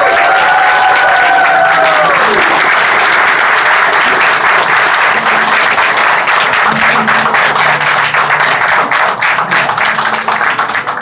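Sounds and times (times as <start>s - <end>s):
crowd applauding: 0.0s - 11.0s
soft music: 4.6s - 11.0s.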